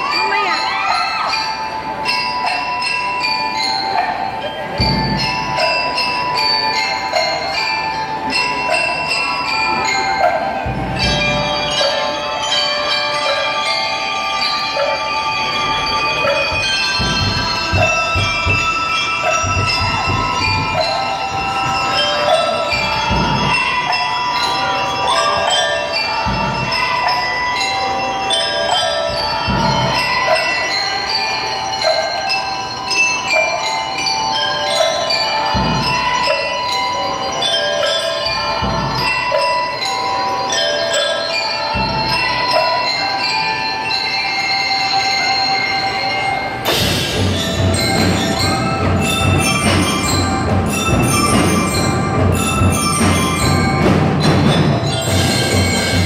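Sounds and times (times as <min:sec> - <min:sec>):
bell lyres playing melody: 0:00.0 - 0:56.0
bass drum strokes: 0:15.6 - 0:21.8.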